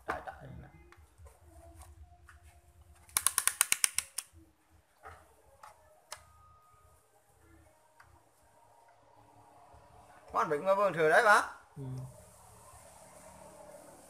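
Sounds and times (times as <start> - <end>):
sharp mechanical clicks: 3.1 - 4.3.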